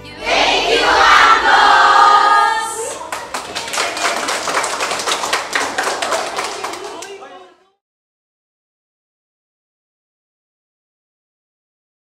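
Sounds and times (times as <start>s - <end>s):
group shouting cheer: 0.3s - 3.8s
people clapping: 2.1s - 7.6s.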